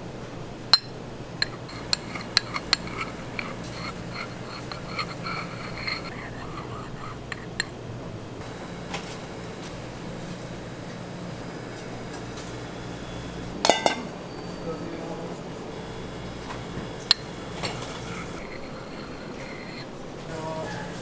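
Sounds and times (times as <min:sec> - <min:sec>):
steady low hum: 0:00.0 - 0:21.0
metal palette knife clinking: 0:00.8 - 0:07.7.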